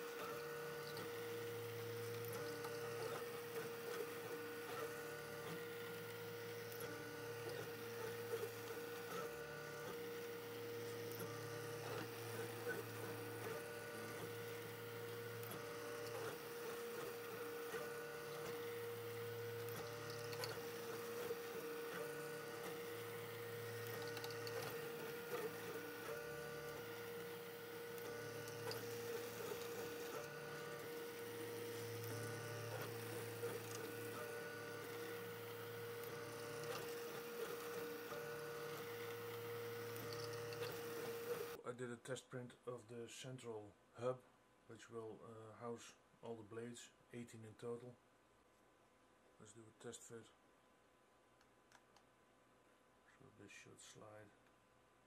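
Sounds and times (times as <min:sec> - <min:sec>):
steady hum: 0:00.0 - 0:41.6
stepper motors whining: 0:00.0 - 0:41.6.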